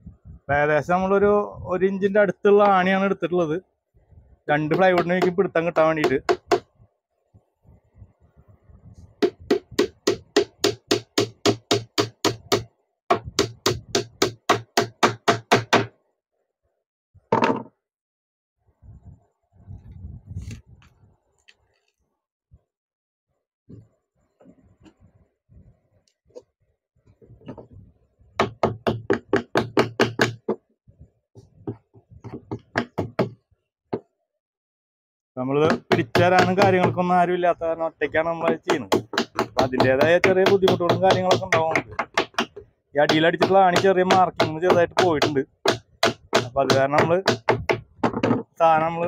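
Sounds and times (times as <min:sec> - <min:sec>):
hammer driving nail into plywood: 0:38.7 - 0:48.4.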